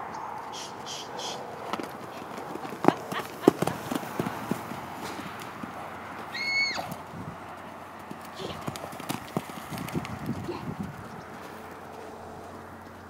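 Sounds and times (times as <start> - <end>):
horse hoofbeats on dirt: 1.2 - 13.0
horse high-pitched call: 6.3 - 6.9.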